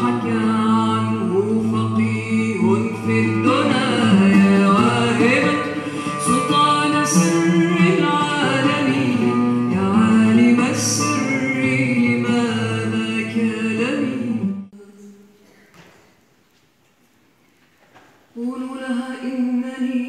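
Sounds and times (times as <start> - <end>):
oud playing: 0.0 - 14.7
woman singing: 0.0 - 15.6, 18.3 - 20.0.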